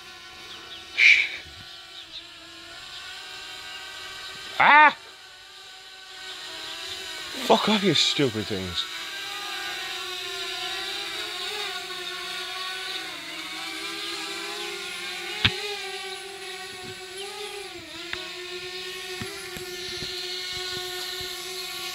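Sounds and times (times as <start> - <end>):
drone propellers whining: 0.0 - 21.9
sharp click: 15.4 - 15.6.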